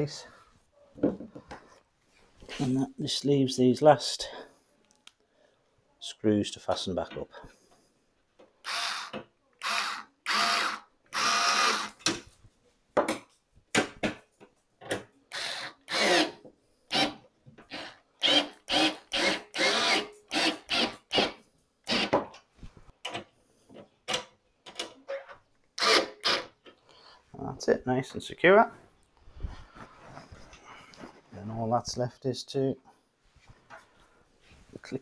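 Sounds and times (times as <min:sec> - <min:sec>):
electric screwdriver driving screws: 0:08.7 - 0:12.0, 0:17.0 - 0:21.3, 0:25.8 - 0:26.5.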